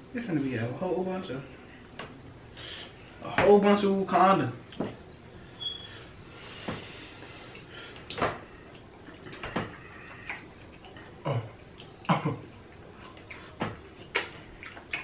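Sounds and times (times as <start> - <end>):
wet mouth smacks and chewing: 10.1 - 12.1, 12.7 - 15.0.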